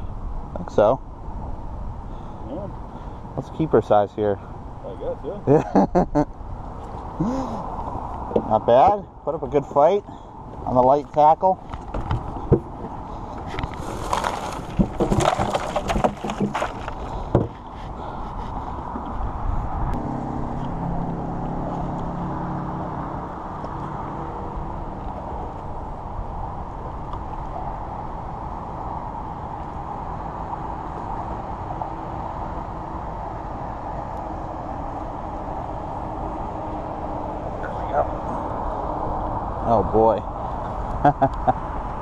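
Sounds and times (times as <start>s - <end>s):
outdoor background rumble: 0.0s - 42.0s
foam cooler scraping and rustling: 11.9s - 18.5s.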